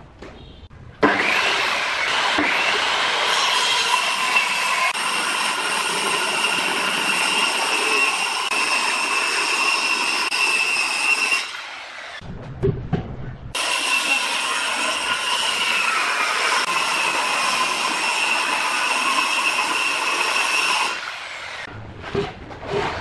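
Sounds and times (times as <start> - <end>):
circular saw cutting plywood: 1.0 - 12.2, 13.6 - 23.0.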